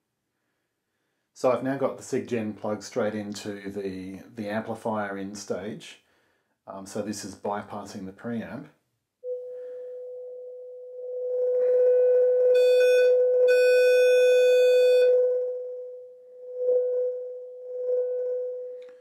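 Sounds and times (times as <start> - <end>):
sine wave test tone: 9.2 - 19.0.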